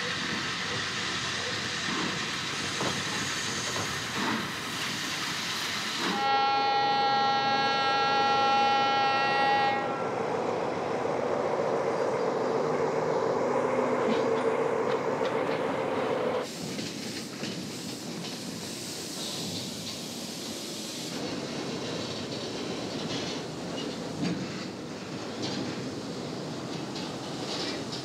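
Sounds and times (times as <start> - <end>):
train wheels clattering on track: 0.0 - 6.9, 14.0 - 28.0
steam locomotive hissing: 0.0 - 28.0
locomotive horn blast: 6.1 - 10.2.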